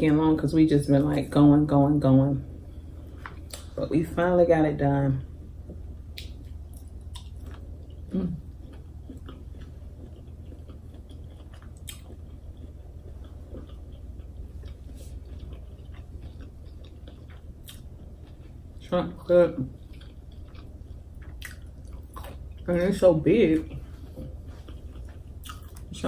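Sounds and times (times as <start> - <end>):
steady low hum: 0.0 - 26.0
wet mouth clicks and smacks: 6.1 - 7.6
close chewing: 6.2 - 18.7, 19.7 - 22.7, 23.6 - 26.0.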